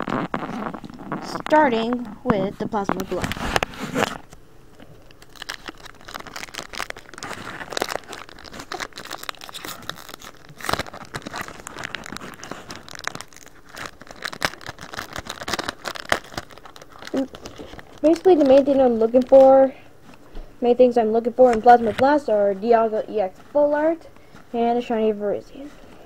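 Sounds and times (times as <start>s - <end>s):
foil wrapper crinkling and tearing: 0.0s - 2.1s, 2.7s - 19.7s.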